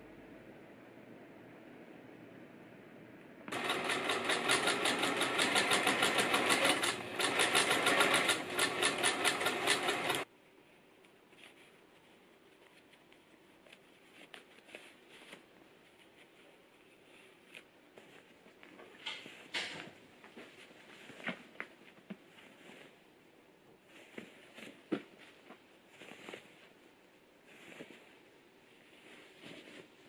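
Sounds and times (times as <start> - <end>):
electric sewing machine stitching: 3.5 - 10.2.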